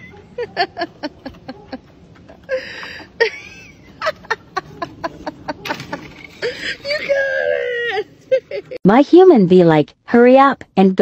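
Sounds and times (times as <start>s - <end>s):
person laughing: 0.0s - 8.8s.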